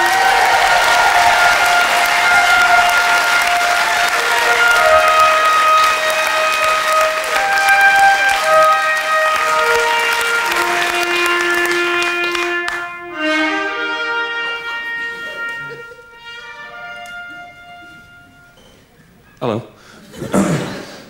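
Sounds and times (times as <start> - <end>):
audience applauding: 0.0 - 13.7
walk-on music with held notes: 0.2 - 19.3.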